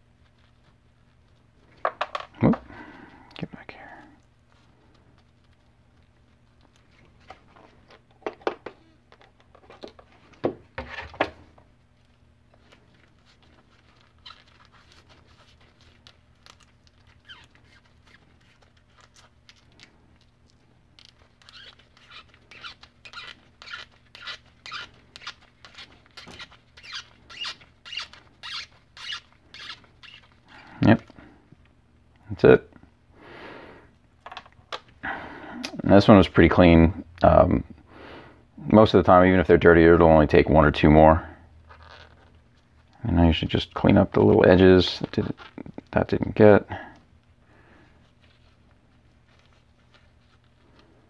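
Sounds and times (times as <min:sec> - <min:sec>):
squeaky rubbing strokes: 0:17.0 - 0:19.0, 0:21.0 - 0:30.4.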